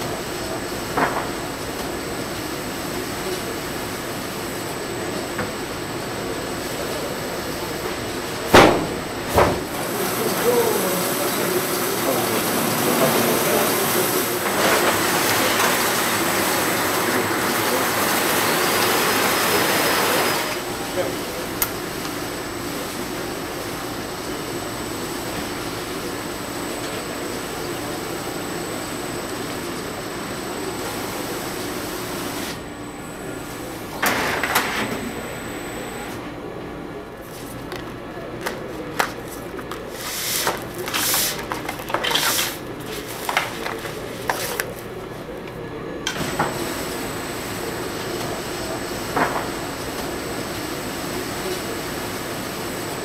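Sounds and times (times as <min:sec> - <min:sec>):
trimming machine running: 0:00.0 - 0:37.7, 0:43.3 - 0:53.0
faint high whine: 0:27.4 - 0:36.6.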